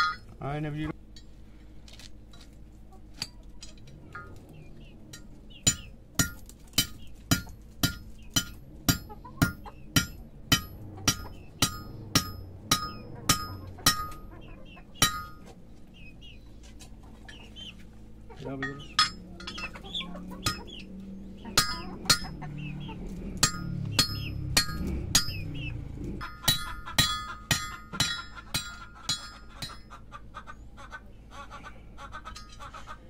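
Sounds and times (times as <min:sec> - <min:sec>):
hammer striking steel rod: 0:00.0 - 0:00.3, 0:05.1 - 0:14.2, 0:15.0 - 0:15.5, 0:18.6 - 0:19.7, 0:20.4 - 0:20.6, 0:21.6 - 0:22.4, 0:23.4 - 0:29.9.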